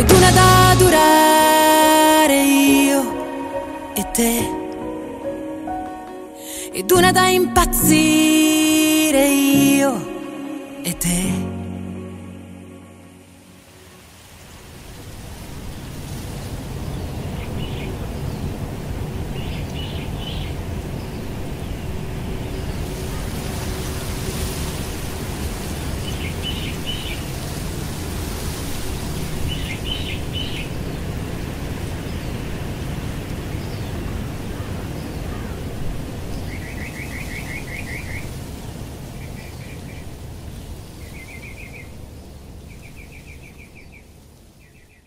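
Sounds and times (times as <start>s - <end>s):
steady rushing hiss: 12.8s - 44.6s
small birds chirping: 19.2s - 24.1s, 25.7s - 27.5s, 28.8s - 31.2s, 33.3s - 38.4s, 39.2s - 45.0s.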